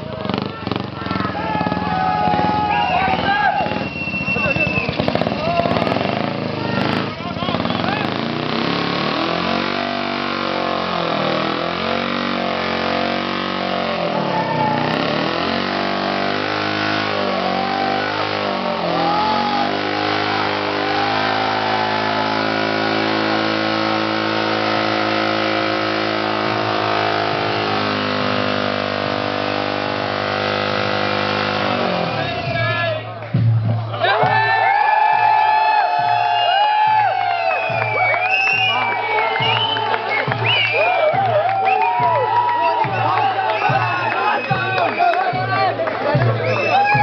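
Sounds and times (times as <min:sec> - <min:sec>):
motorcycle engine revving: 0:00.0 - 0:33.6.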